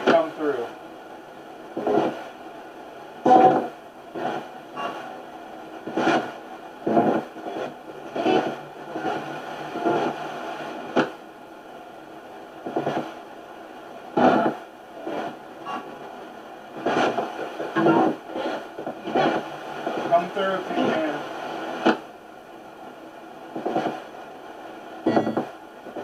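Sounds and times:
radio broadcast fragments: 0.0 - 0.8, 5.8 - 11.2, 14.2 - 15.9, 16.8 - 22.0
radio static: 0.0 - 0.8, 1.7 - 2.4, 3.2 - 5.2, 5.8 - 11.2, 12.6 - 13.2, 14.1 - 22.1, 23.6 - 24.3.

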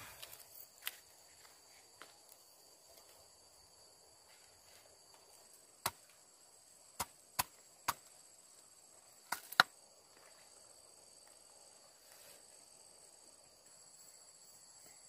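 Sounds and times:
insects chirring: 0.0 - 15.0
machete chopping bamboo: 5.8 - 6.2, 6.9 - 8.1, 9.2 - 9.8.

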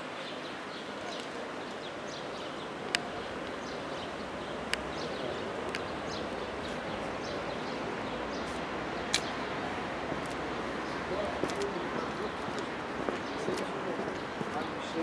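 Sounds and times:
distant city traffic hum: 0.0 - 15.0
small birds chirping: 0.1 - 15.0
sharp clicks: 9.1 - 9.4.

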